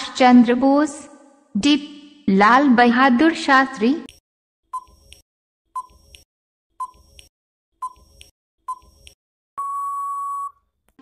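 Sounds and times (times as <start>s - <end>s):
countdown timer tick-beeps: 4.0s - 5.2s, 6.8s - 10.5s
long steady beep: 9.6s - 10.6s.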